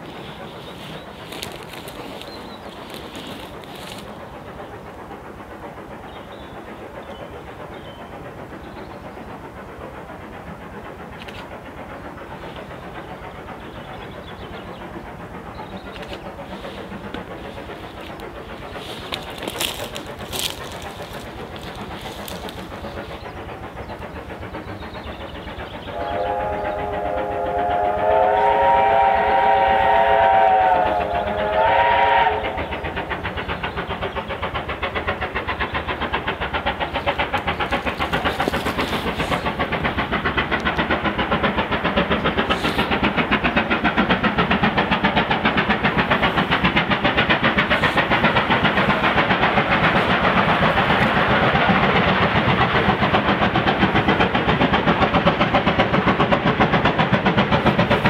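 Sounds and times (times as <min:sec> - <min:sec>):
locomotive exhaust beats: 0:00.0 - 0:58.0
steam locomotive whistle: 0:25.9 - 0:32.9.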